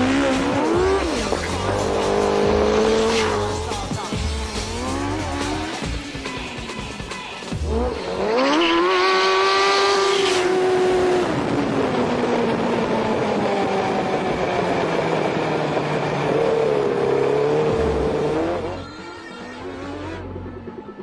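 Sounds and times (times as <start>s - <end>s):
go-kart engine revving: 0.0s - 6.1s.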